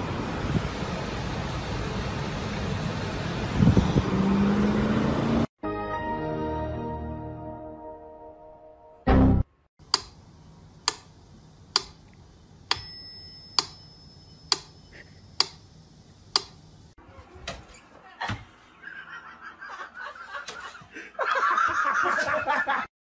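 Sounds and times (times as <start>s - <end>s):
faint high ringing tone: 12.7s - 15.4s.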